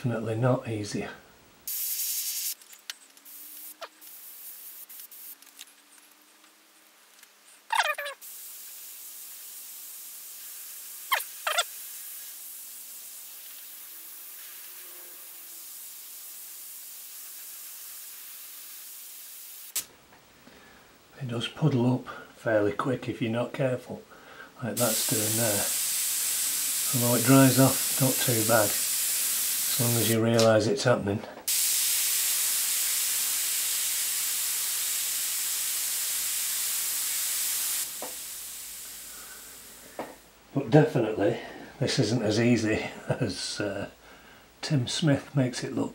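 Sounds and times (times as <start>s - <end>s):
airbrush hissing: 1.7s - 2.6s, 3.2s - 5.6s, 7.8s - 19.9s, 24.8s - 30.2s, 31.5s - 40.1s.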